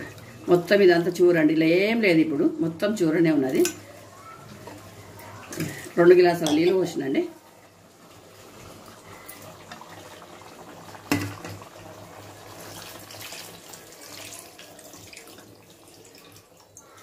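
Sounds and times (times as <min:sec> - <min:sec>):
water pouring and splashing: 0:08.2 - 0:17.0.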